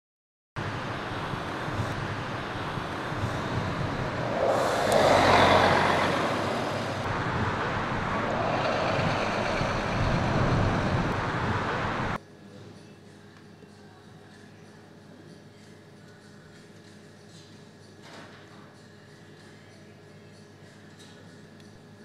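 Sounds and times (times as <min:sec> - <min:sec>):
bus driving past: 0:00.6 - 0:12.2.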